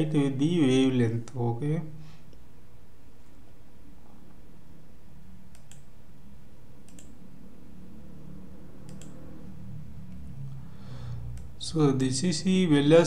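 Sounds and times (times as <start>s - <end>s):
steady low hum: 0.0s - 13.0s
computer mouse clicking: 5.5s - 5.9s, 6.8s - 7.2s, 8.8s - 9.3s, 11.3s - 11.6s.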